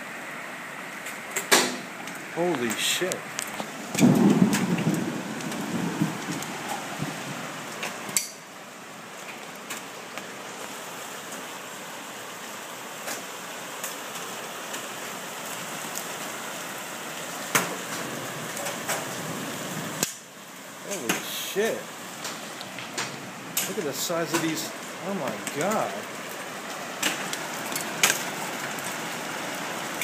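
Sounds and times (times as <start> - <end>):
hail and rain falling: 0.9 - 30.0
hailstones striking hard surfaces: 2.5 - 8.3, 22.1 - 30.0.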